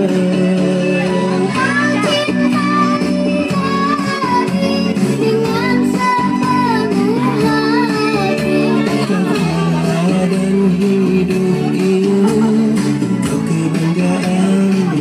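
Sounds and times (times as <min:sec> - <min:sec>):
held instrumental chords: 0:00.0 - 0:15.0
child singing devotional song: 0:01.5 - 0:08.8.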